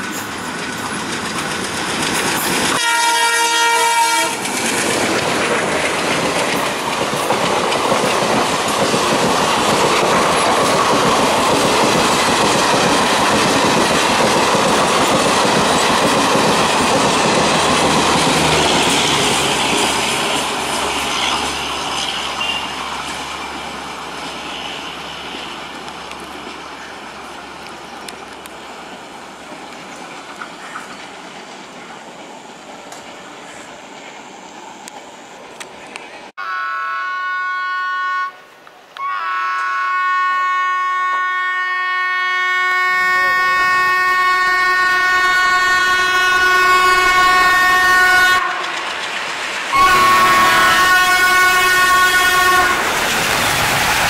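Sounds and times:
locomotive engine and wheel rumble: 0:00.0 - 0:36.3, 0:45.0 - 0:54.0
train coaches rumbling past: 0:00.0 - 0:36.3, 0:37.4 - 0:54.0
diesel locomotive horn: 0:02.7 - 0:04.5, 0:22.2 - 0:22.8, 0:24.4 - 0:25.5, 0:36.4 - 0:48.9, 0:49.7 - 0:53.0.

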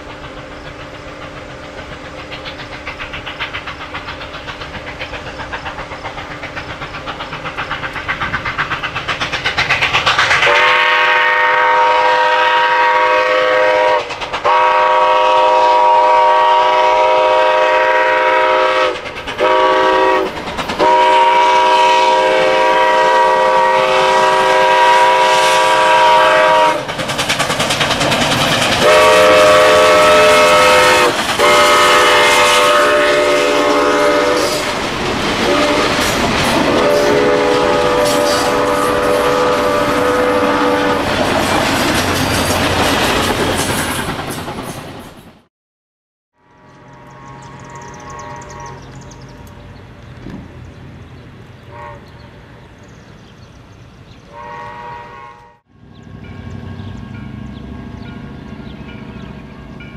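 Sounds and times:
steam locomotive running: 0:00.0 - 0:45.5, 0:46.5 - 0:59.9
locomotive chime whistle: 0:28.8 - 0:34.7, 0:46.5 - 0:49.5.

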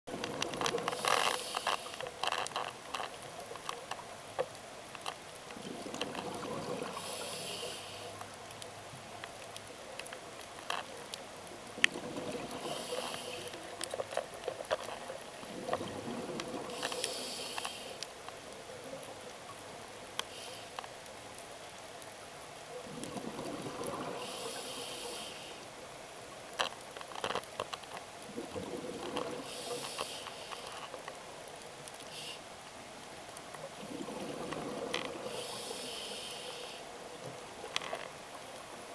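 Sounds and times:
exhaled bubbles underwater: 0:05.6 - 0:07.0, 0:11.8 - 0:13.0, 0:15.4 - 0:16.8, 0:22.8 - 0:24.4, 0:28.3 - 0:29.5, 0:33.8 - 0:35.4.

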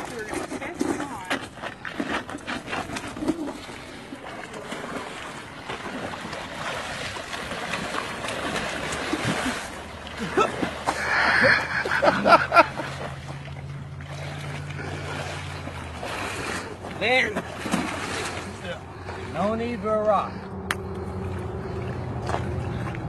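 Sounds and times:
splashing in shallow water: 0:00.0 - 0:23.0
steady low hum: 0:07.8 - 0:23.0.

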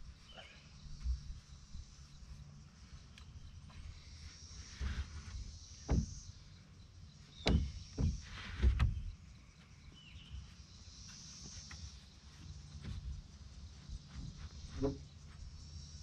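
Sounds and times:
wooden thuds and knocks: 0:05.0 - 0:06.3, 0:07.4 - 0:09.1, 0:12.4 - 0:13.3, 0:13.9 - 0:15.1.

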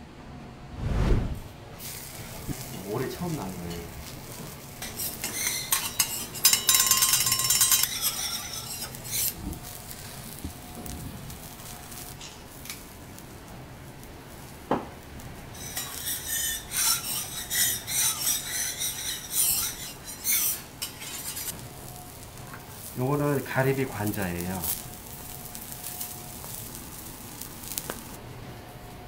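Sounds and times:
metal spatulas scraping on griddle: 0:01.8 - 0:10.9, 0:11.5 - 0:12.8, 0:15.5 - 0:28.1.

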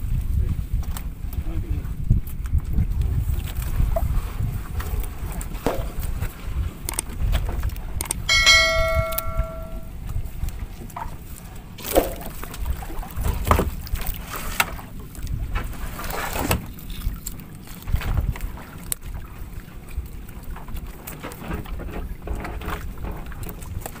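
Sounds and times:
wind rumbling on microphone: 0:00.0 - 0:24.0
knocks and clatter on wooden boat: 0:00.6 - 0:09.9, 0:10.5 - 0:16.7, 0:20.4 - 0:24.0
bell chime: 0:08.3 - 0:09.9.

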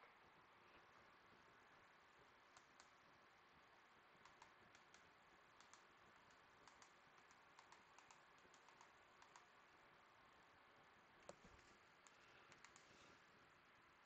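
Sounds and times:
faint keyboard typing: 0:02.4 - 0:03.1, 0:04.2 - 0:09.8, 0:11.2 - 0:13.3.

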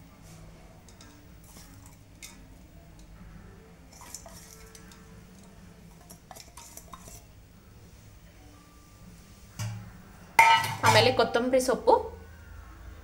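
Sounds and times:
clinks against metal cooking pot: 0:10.4 - 0:11.2.

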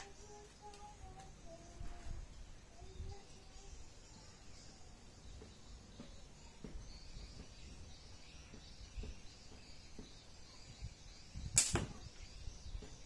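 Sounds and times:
faint high chirping: 0:00.0 - 0:13.0
slingshot crack: 0:11.5 - 0:12.1.

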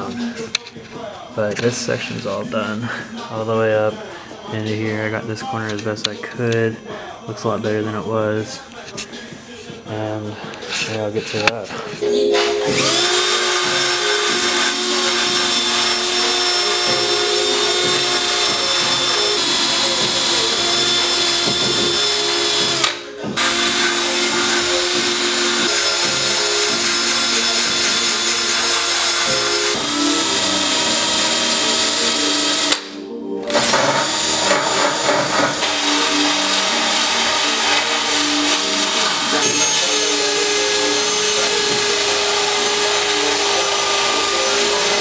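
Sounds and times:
drill wire brush scrubbing metal: 0:12.8 - 0:32.8, 0:33.5 - 0:45.0.

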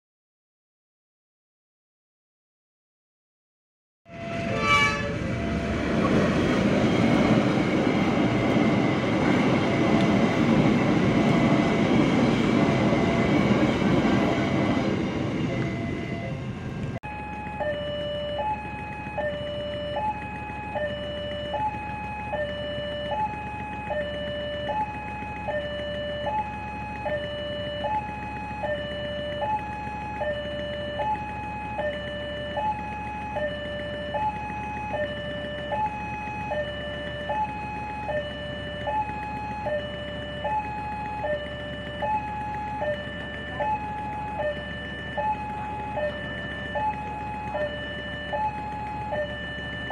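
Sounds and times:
level crossing two-tone alarm: 0:17.0 - 0:49.9.

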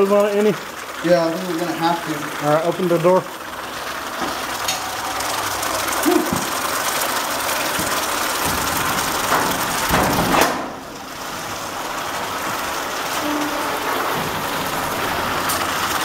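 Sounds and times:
hot metal bubbling and hissing: 0:00.0 - 0:16.0.

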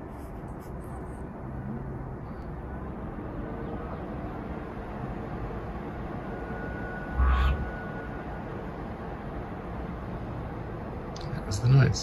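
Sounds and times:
compressor mechanical hum: 0:01.1 - 0:11.2
faint high whine: 0:05.4 - 0:09.6.

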